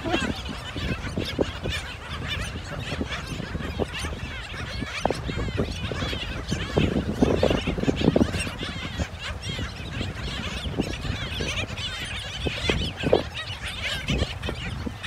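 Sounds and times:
seabirds chirping and yapping: 0.0s - 15.0s
wind and surf rumble: 0.0s - 15.0s.

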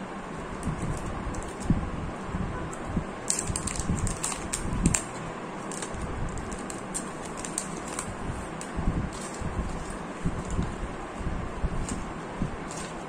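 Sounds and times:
plastic film crackling: 3.2s - 10.9s, 11.7s - 13.0s.

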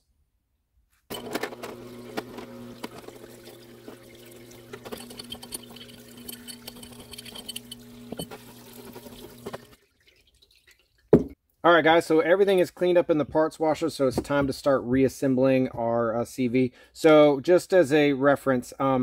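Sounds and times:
pump humming: 1.1s - 9.8s
solvent splashing in a tub: 2.6s - 4.8s, 7.8s - 11.1s
metal parts clicking together: 4.8s - 8.3s.

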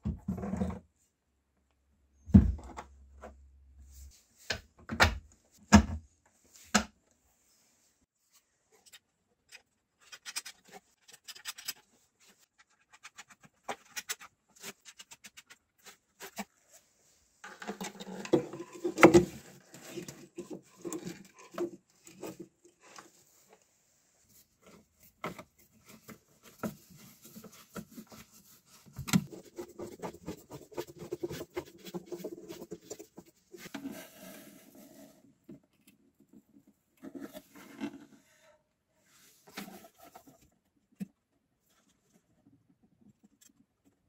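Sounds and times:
rubbing and scraping: 9.5s - 38.4s.

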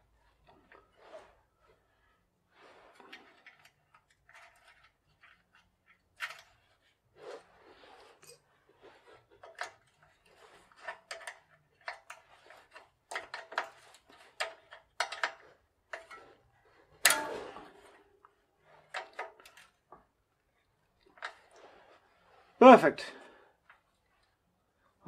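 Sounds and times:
metal clank with ring: 17.1s - 18.0s.

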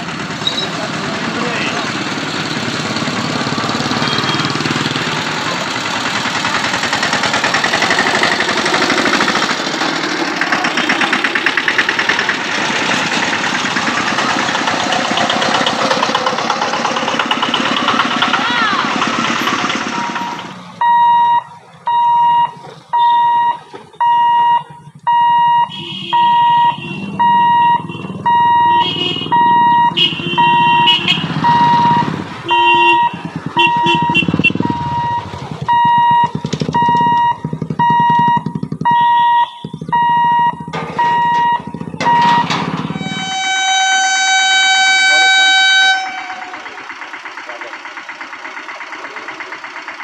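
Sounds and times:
vehicle engines running: 0.0s - 50.0s
level crossing alarm beeping: 19.4s - 47.1s.

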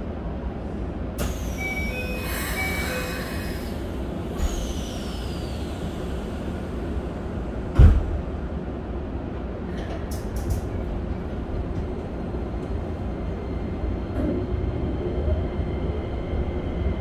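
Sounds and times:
train low hum: 0.0s - 17.0s
sliding train doors shutting: 1.1s - 8.5s, 9.3s - 13.1s
loud thump: 7.7s - 8.2s.

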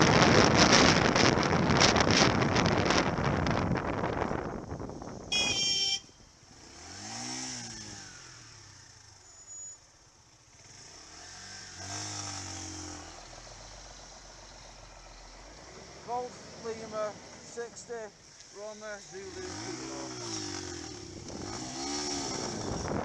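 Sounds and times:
wind noise on microphone: 0.0s - 6.2s, 20.3s - 23.0s
motorcycle engine revving: 5.2s - 23.0s
motorcycle horn blast: 5.3s - 6.2s.

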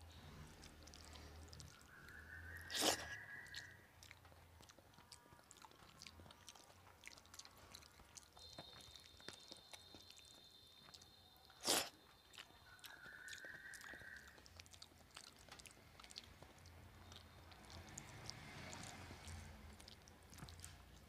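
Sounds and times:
person chewing: 0.2s - 21.0s
wet mouth clicks: 0.6s - 21.0s
faint steady high tone: 8.3s - 14.4s.

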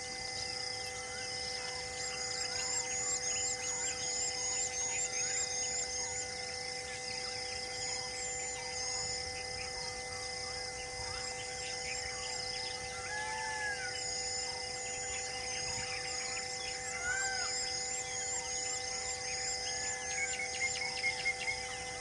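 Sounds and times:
steady hum: 0.0s - 22.0s
birds chirping: 0.4s - 22.0s
whistled bird call: 11.0s - 22.0s.

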